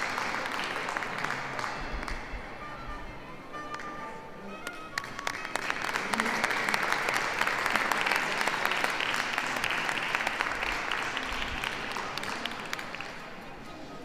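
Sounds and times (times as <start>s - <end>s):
audience applauding: 0.0s - 2.3s, 4.9s - 13.5s.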